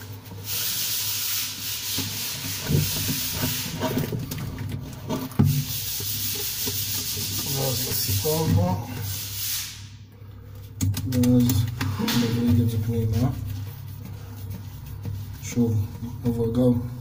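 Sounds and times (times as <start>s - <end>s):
plastic pipe scraping against seal: 1.9s - 8.8s.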